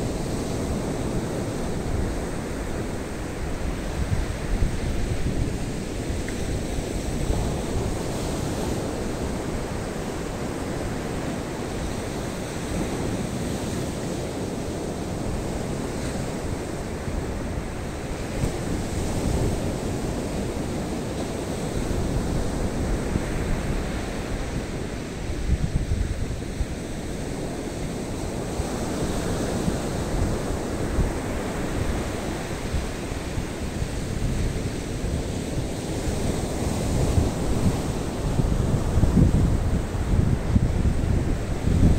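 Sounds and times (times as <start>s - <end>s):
sea surf breaking on beach: 0.0s - 41.9s
wind buffeting microphone: 0.0s - 41.9s.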